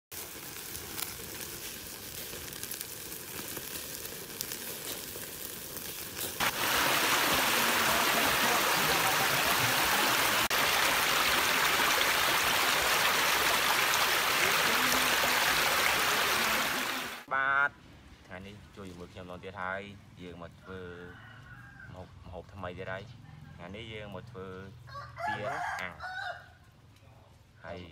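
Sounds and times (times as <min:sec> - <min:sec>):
charcoal fire crackling: 0:00.1 - 0:17.3
meat sizzling on a grill: 0:00.1 - 0:17.3
stream pouring over rocks: 0:06.2 - 0:17.3.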